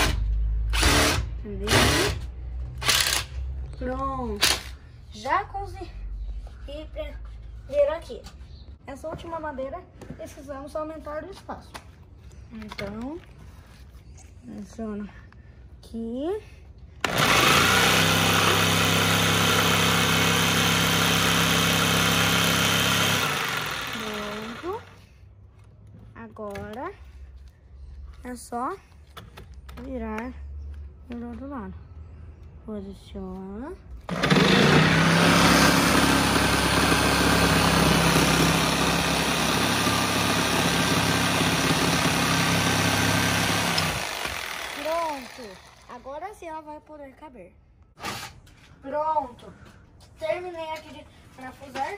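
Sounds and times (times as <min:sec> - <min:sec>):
electric jigsaw cutting wood: 0:00.0 - 0:02.2, 0:02.8 - 0:03.3, 0:17.0 - 0:25.0, 0:34.1 - 0:46.0.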